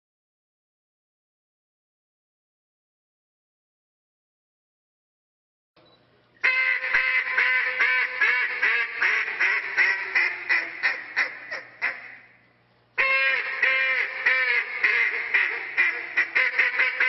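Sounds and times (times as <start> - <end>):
duck call quacking: 6.4 - 12.3, 13.0 - 17.0.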